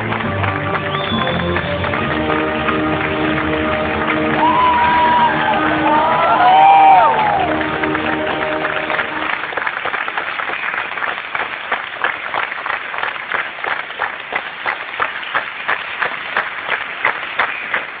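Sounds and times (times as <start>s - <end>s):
audience applauding: 0.0s - 18.0s.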